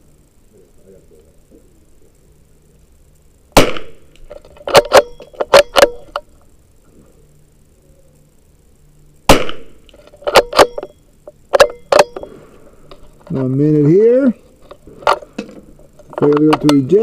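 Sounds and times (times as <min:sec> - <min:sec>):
rifle shot: 0:03.6 - 0:04.1, 0:09.3 - 0:10.9.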